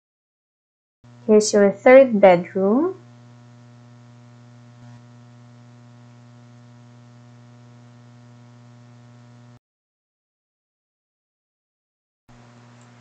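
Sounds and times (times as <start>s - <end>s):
electrical mains hum: 1.1s - 9.6s, 12.3s - 13.0s.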